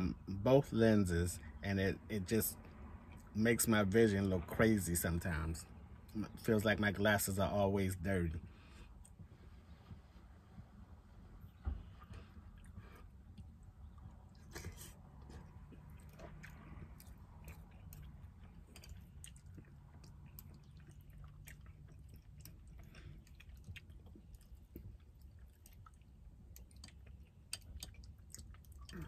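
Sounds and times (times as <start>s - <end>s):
low steady hum: 0.0s - 29.0s
person chewing food: 8.4s - 29.0s.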